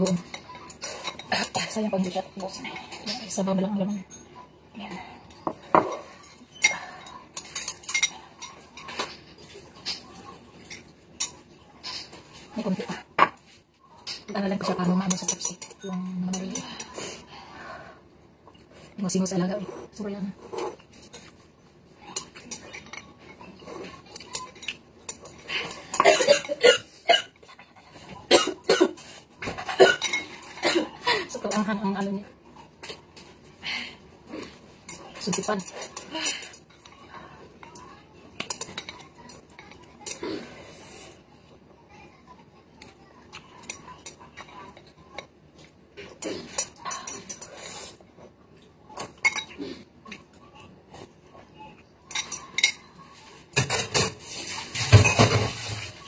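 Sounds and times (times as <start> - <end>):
dishes and utensils clattering: 0.0 - 4.4, 5.2 - 17.0, 19.8 - 33.5, 34.2 - 41.2, 42.8 - 51.2, 52.0 - 56.0
woman coughing: 26.0 - 27.3, 28.3 - 29.0, 29.7 - 31.3.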